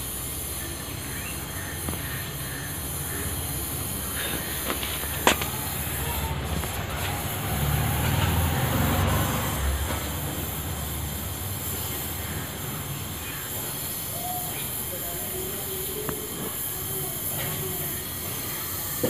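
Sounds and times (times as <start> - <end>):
welding torch flame hissing: 0.0 - 8.6.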